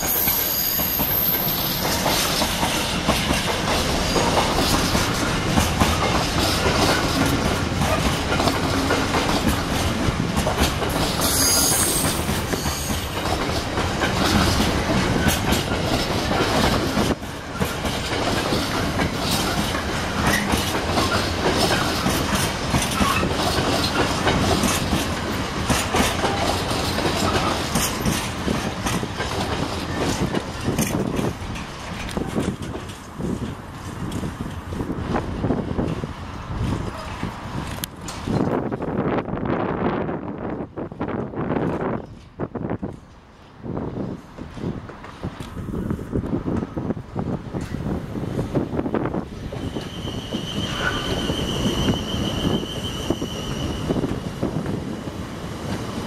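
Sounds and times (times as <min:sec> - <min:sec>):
high-pitched wheel squeal: 0:00.0 - 0:01.8, 0:11.2 - 0:13.1, 0:49.4 - 0:54.2
train wheels clattering over rail joints: 0:00.0 - 0:39.0.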